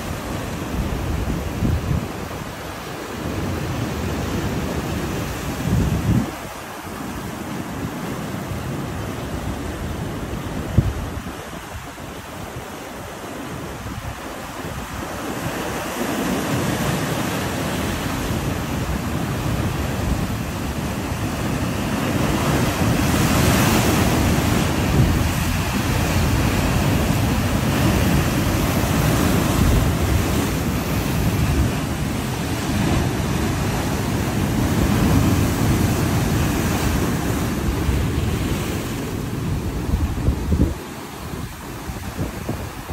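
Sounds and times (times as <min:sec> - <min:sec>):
wind buffeting microphone: 0:00.0 - 0:02.7, 0:03.3 - 0:07.0, 0:09.0 - 0:42.9
surf breaking on rocks: 0:14.4 - 0:40.8.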